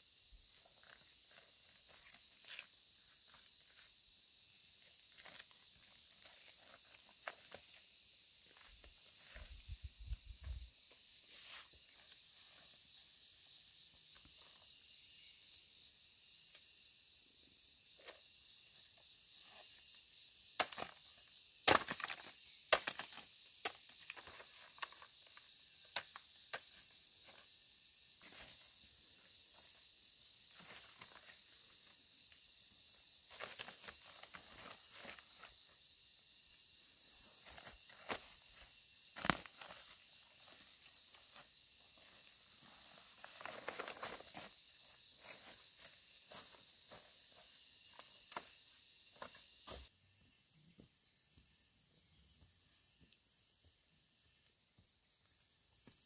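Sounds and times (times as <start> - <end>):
chorus of insects: 0.0 - 56.0
sharp snaps and crackles: 39.2 - 39.8.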